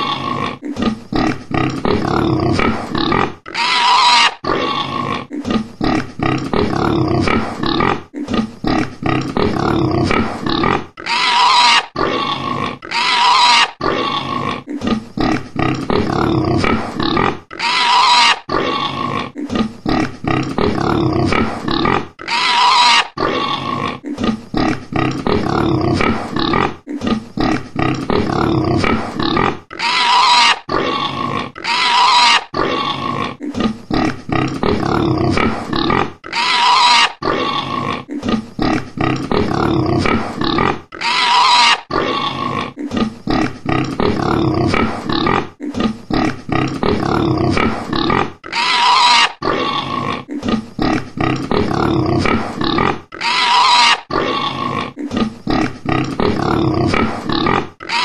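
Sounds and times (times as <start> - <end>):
pigs squealing: 0.0 - 8.0, 8.7 - 26.7, 27.4 - 45.4, 46.1 - 58.0
pigs grunting: 0.0 - 58.0.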